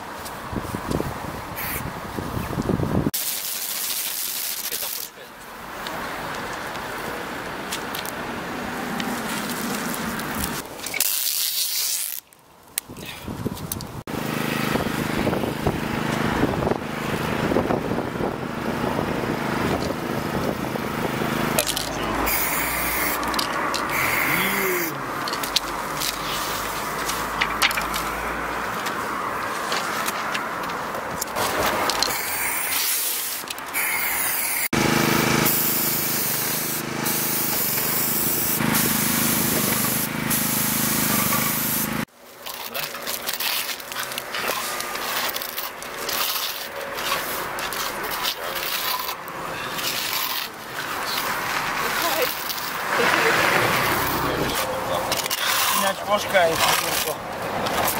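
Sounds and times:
traffic rumble: 0.0 - 3.2, 4.2 - 57.9
spray hose hissing: 3.2 - 5.1, 22.2 - 25.0, 32.1 - 42.1
machine engine humming: 34.7 - 42.1.

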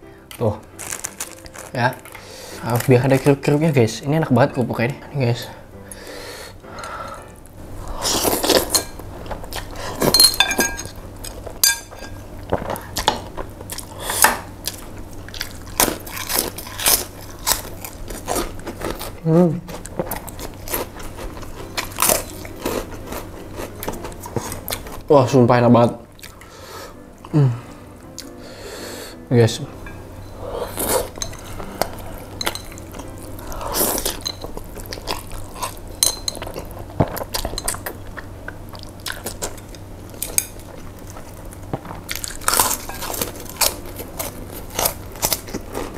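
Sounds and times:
chopsticks clinking against bowl: 10.0 - 11.0
crunchy chewing: 12.4 - 25.0, 30.4 - 45.9.

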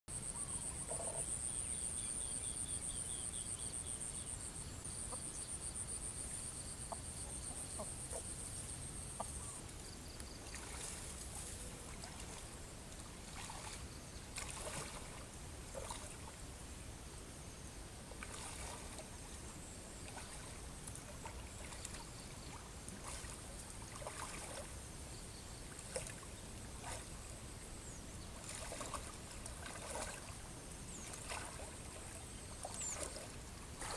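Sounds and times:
muddy water splashing: 10.3 - 16.5, 18.1 - 24.8, 25.6 - 33.9.

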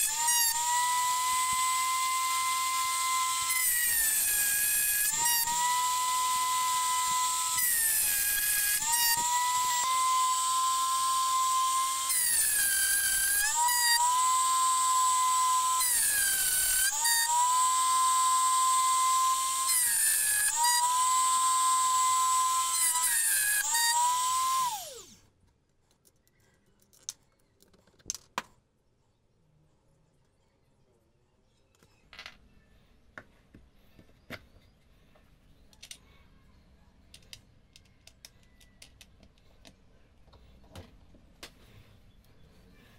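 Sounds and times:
rotary tool motor whining: 0.0 - 25.3.

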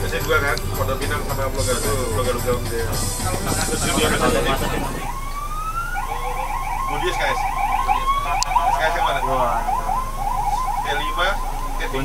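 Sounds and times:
electronic siren yelping: 3.0 - 12.0.

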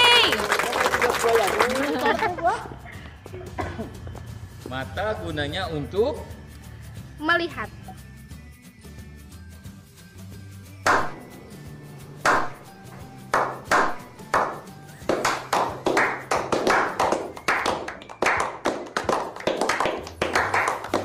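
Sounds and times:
group clapping: 0.0 - 2.6, 10.8 - 11.3, 12.2 - 21.0
low music bed: 1.1 - 21.0.

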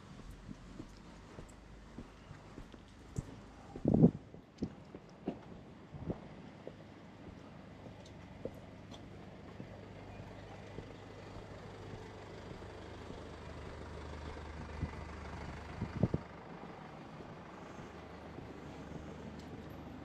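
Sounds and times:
vehicle passing: 11.6 - 20.0.

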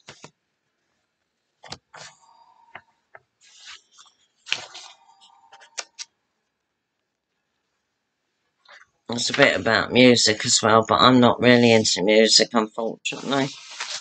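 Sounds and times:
paper sheets rustling: 1.6 - 2.2, 3.4 - 6.1, 13.1 - 14.0.

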